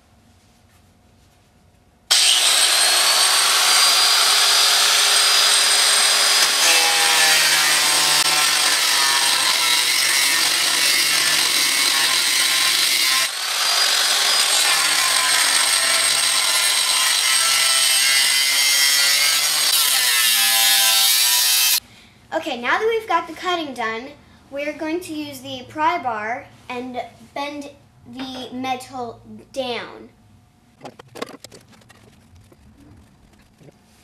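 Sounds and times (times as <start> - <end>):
angle grinder cutting steel: 2.1 - 21.8.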